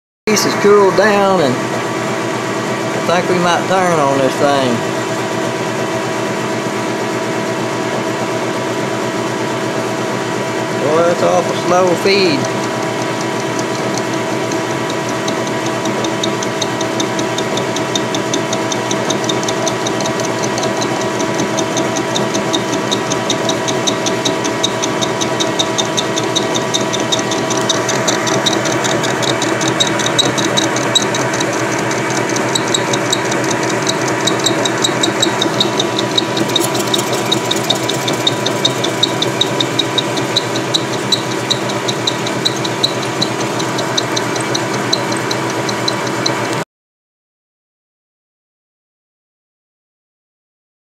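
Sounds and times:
metal lathe humming: 0:00.3 - 0:46.6
fast ticking of lathe cut: 0:02.9 - 0:05.7, 0:10.0 - 0:46.6.

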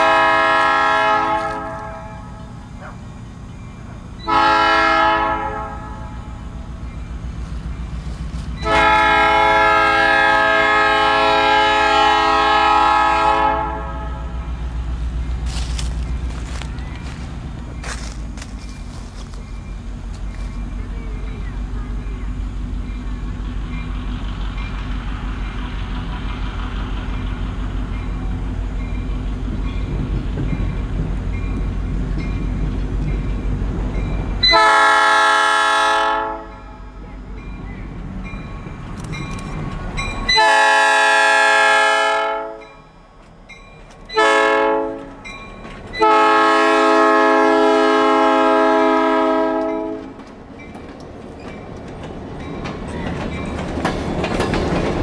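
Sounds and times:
locomotive air horn blasts: 0:00.0 - 0:02.4, 0:04.3 - 0:06.2, 0:08.6 - 0:14.4, 0:34.4 - 0:36.8, 0:40.3 - 0:42.7, 0:44.1 - 0:45.2, 0:46.0 - 0:50.2
train wheels rolling: 0:00.0 - 0:13.4, 0:14.2 - 0:55.0
locomotive engine running: 0:00.0 - 0:55.0.

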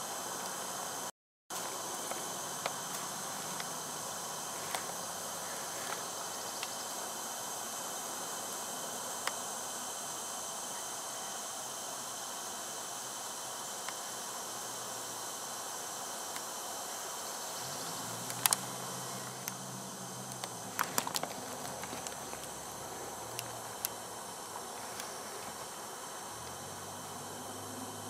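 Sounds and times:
microphone hiss: 0:00.0 - 0:28.0
sharp clicks and snaps: 0:18.2 - 0:18.8, 0:20.3 - 0:22.6.

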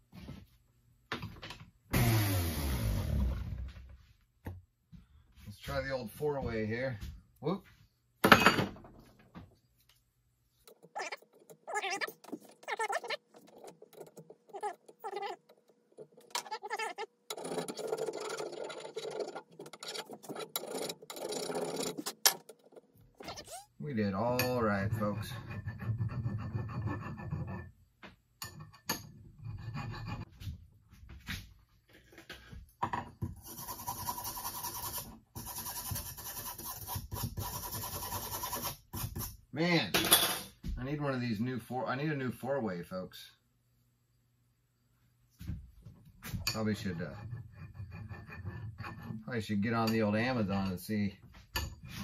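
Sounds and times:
rasp scraping wooden handle: 0:10.7 - 0:23.5, 0:24.7 - 0:27.7, 0:46.7 - 0:49.4.

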